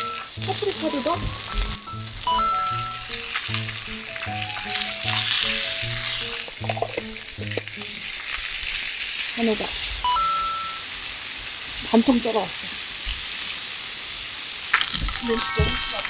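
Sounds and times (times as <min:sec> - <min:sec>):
background music: 0:00.0 - 0:10.9
fish sizzling in frying pan: 0:00.0 - 0:16.0.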